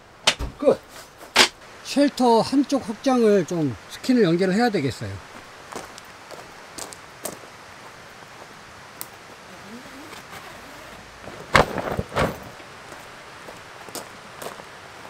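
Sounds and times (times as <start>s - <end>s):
canvas tent flapping: 9.4s - 13.1s.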